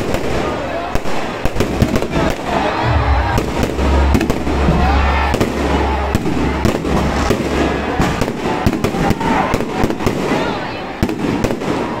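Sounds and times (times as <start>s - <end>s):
fireworks bangs and crackles: 0.0s - 12.0s
low rumble: 2.6s - 8.6s.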